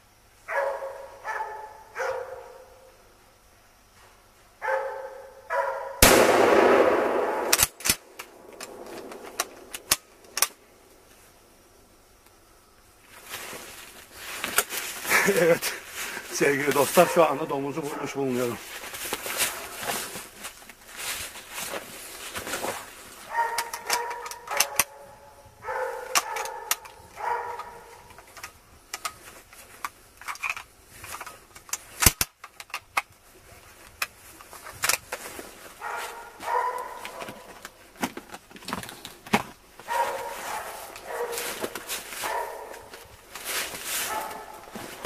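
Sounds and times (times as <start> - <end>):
dogs barking and baying: 0.5 - 2.9, 4.6 - 6.0, 17.0 - 18.4, 23.2 - 28.2, 35.8 - 37.6, 39.8 - 43.2, 44.0 - 45.0
gunshot: 6.0 - 9.7.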